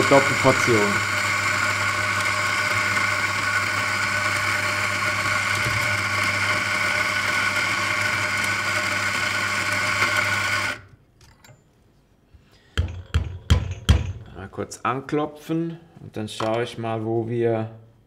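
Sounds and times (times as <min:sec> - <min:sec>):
coffee grinder grinding beans: 0:00.0 - 0:10.9.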